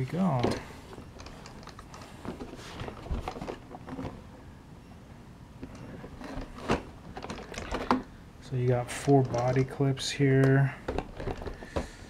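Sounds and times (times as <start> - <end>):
plastic rustling: 0.0 - 4.3.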